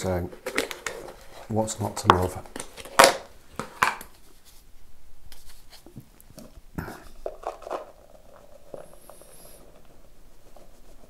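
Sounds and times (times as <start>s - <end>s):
powder pouring into plastic cup: 7.2s - 11.0s.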